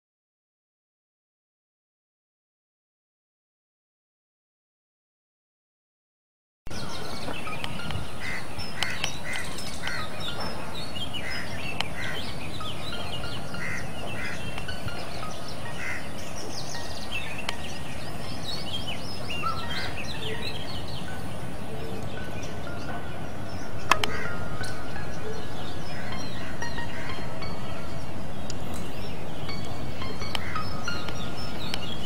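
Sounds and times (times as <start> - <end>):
birds calling and chirping: 6.7 - 32.0
steady hiss: 6.7 - 32.0.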